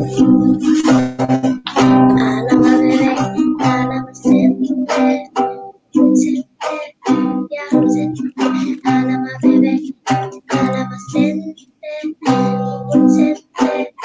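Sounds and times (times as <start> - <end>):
classical guitar strumming chords: 0.0 - 14.0.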